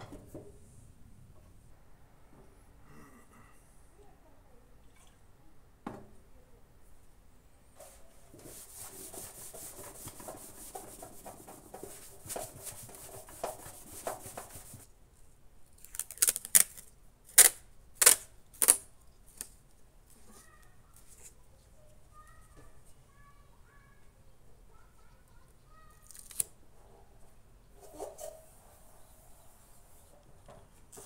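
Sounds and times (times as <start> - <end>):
cloth rubbing on metal: 7.8 - 14.9, 27.8 - 30.2
tape tearing off roll: 15.8 - 19.5, 26.0 - 26.6.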